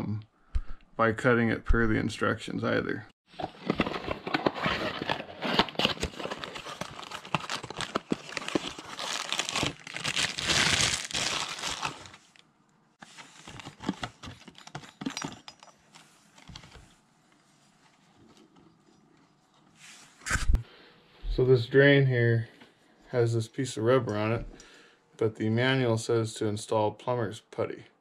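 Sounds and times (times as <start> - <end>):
packaging crinkling and tearing: 3.4 - 12.4.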